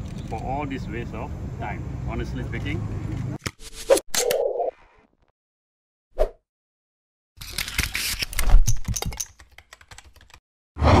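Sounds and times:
rapid typing-like clicks: 8.7 - 10.4.

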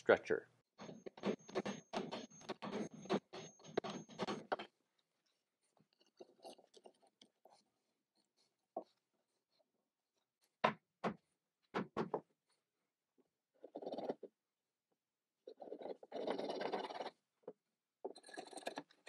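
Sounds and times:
chisel scraping wood: 0.8 - 9.6, 15.5 - 17.2, 18.0 - 19.0.

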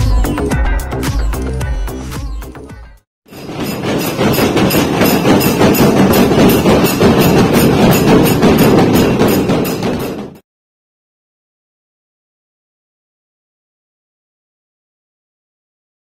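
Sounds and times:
side drums and bass drum: 3.3 - 10.4.

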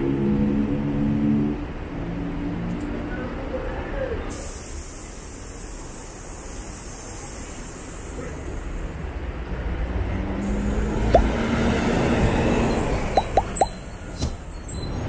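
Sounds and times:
bus engines running: 0.0 - 15.0
brake squeal chirps: 12.5 - 15.0.

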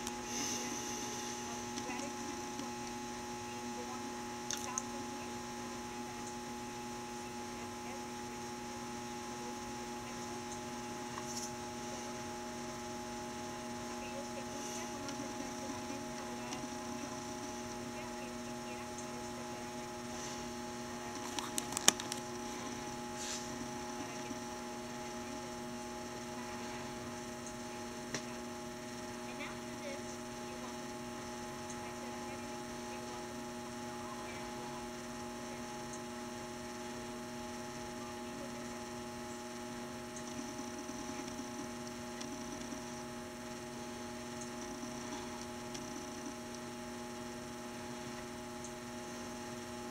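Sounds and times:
electrical mains hum: 0.0 - 49.9
sharp clicks: 21.2 - 22.3.

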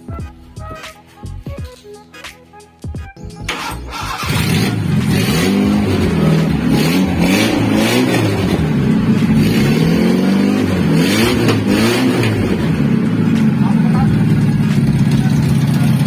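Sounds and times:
engine revving: 3.4 - 16.0.

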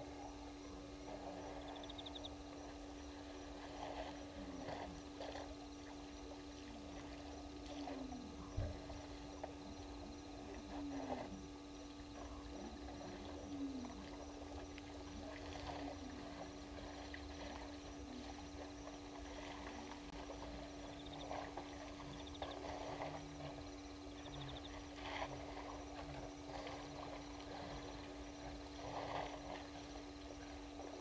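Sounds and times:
elephant low sounds: 0.0 - 31.0
steady low hum: 0.0 - 31.0
water splashing and sloshing: 0.0 - 31.0.

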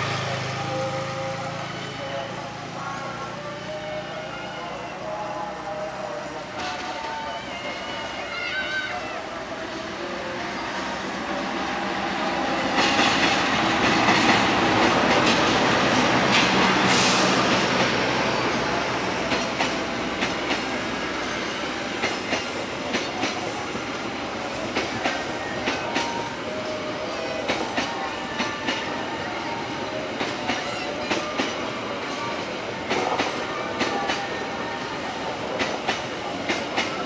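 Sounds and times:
diesel locomotive passing: 0.0 - 37.0
train wheels clickety-clack: 12.3 - 29.1, 30.0 - 37.0.

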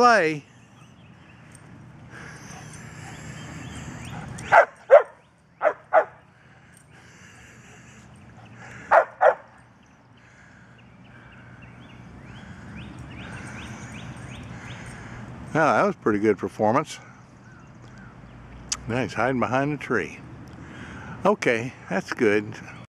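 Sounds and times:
dog barking: 4.4 - 6.2, 8.9 - 9.5.

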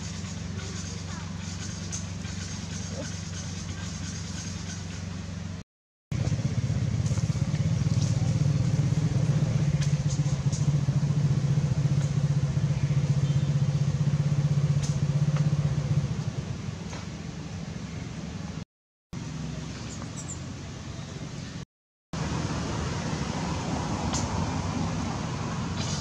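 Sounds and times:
motorbike engine droning: 6.1 - 16.6.

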